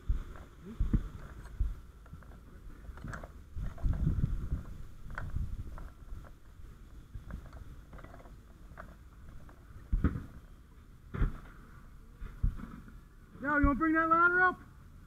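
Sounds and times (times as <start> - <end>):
wind rumbling on microphone: 0.0 - 10.4.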